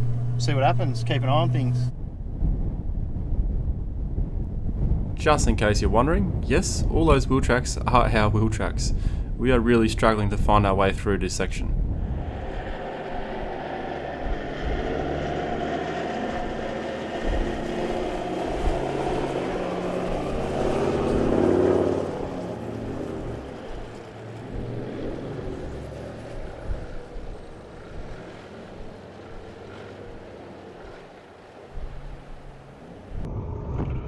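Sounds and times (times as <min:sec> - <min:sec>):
off-road engine revving: 0:00.0 - 0:01.9, 0:12.0 - 0:33.3.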